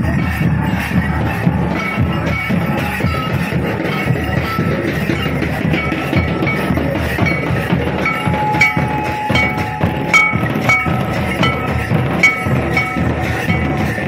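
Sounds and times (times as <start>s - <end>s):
barrel drums rhythm: 0.0s - 14.0s
short high notes: 7.3s - 13.8s.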